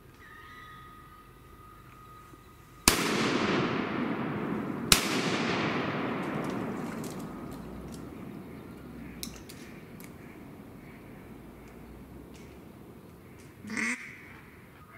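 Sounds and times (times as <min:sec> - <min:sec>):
faint steady high tone: 0:00.0 - 0:02.9
shotgun blasts with echo: 0:02.9 - 0:11.1.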